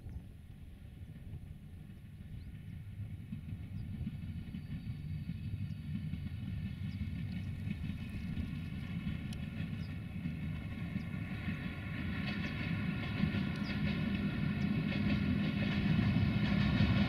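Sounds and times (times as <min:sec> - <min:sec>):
train rumbling: 0:00.0 - 0:17.0
locomotive whine: 0:00.2 - 0:17.0.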